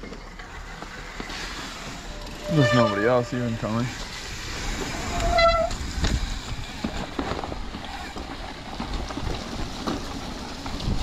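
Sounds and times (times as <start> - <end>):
bike rattling and knocking: 0.0 - 11.0
high squeal: 1.0 - 7.1
wind buffeting microphone: 4.2 - 11.0.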